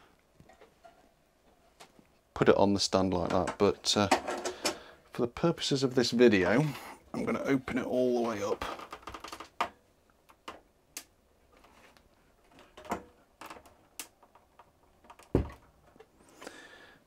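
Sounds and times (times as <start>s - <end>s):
clicks and knocks handling electronics: 0.2s - 2.2s, 3.2s - 4.9s, 8.3s - 16.2s
dull thump: 15.3s - 15.6s.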